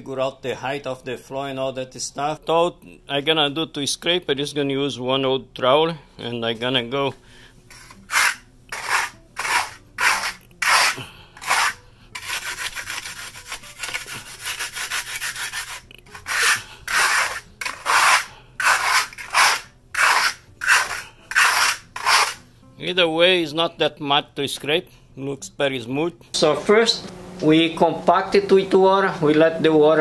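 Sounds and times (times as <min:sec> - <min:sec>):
trowel scraping concrete: 0:07.7 - 0:22.4.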